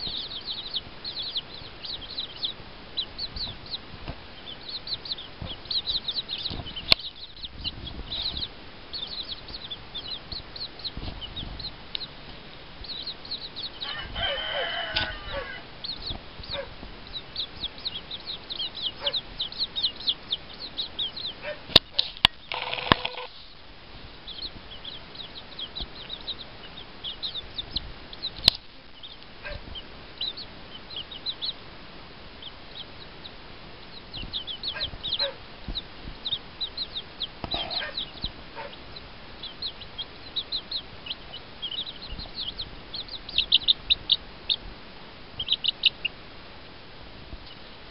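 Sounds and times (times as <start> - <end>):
chicks peeping: 0.0 - 47.9
hen calling: 12.9 - 23.4
sharp clicks: 21.8 - 23.3.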